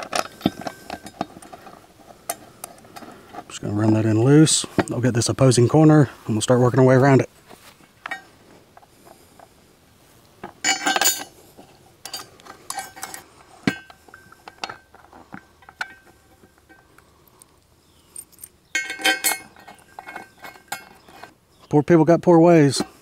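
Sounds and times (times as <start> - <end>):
steel hardware clinking on metal plate: 0.0 - 3.5, 8.0 - 8.3, 10.5 - 21.4.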